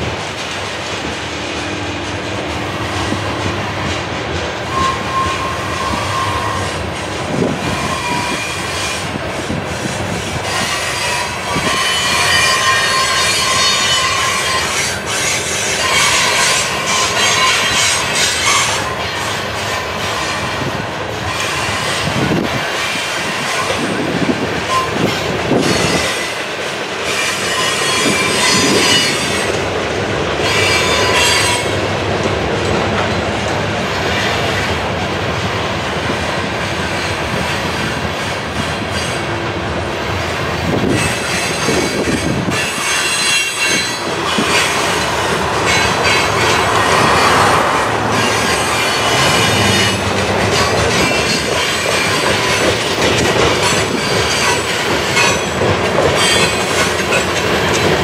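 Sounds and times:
freight train rolling past: 0.0s - 58.0s
wheels clacking over rail joints: 0.0s - 58.0s
high-pitched wheel squeal: 4.6s - 6.9s, 7.6s - 9.2s, 10.4s - 20.6s, 27.1s - 29.6s, 40.8s - 52.7s.

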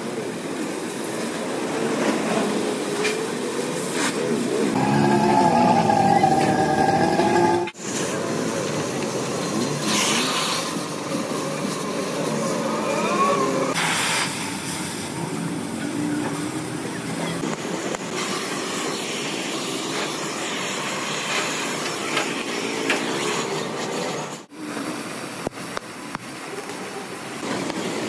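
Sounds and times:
steady machinery noise: 2.0s - 28.0s
short hiss: 13.8s - 15.1s.

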